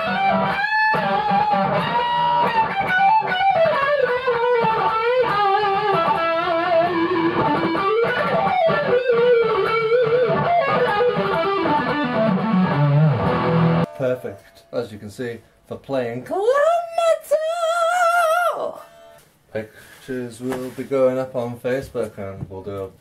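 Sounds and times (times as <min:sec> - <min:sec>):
electric guitar metal lead: 0:00.0 - 0:14.9.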